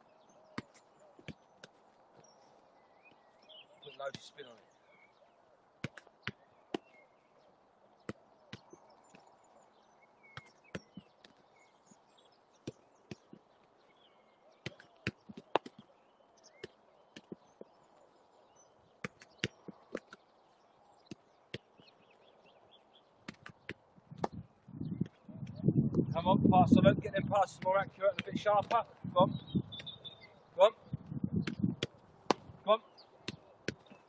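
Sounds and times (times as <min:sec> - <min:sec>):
foot kicking football: 0:00.5 - 0:02.3, 0:05.8 - 0:07.0, 0:08.0 - 0:09.3, 0:10.2 - 0:11.4, 0:12.6 - 0:13.6, 0:14.6 - 0:15.9, 0:16.5 - 0:17.8, 0:19.0 - 0:20.2, 0:23.2 - 0:25.2, 0:27.5 - 0:28.8, 0:31.4 - 0:34.0.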